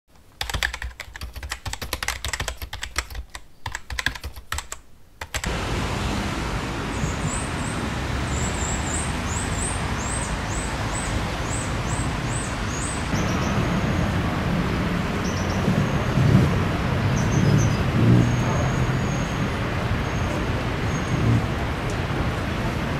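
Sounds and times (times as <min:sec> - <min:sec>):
rapid sharp clicks: 0:00.1 - 0:05.5
street traffic: 0:05.3 - 0:22.9
birds chirping: 0:06.8 - 0:14.3, 0:15.1 - 0:21.5.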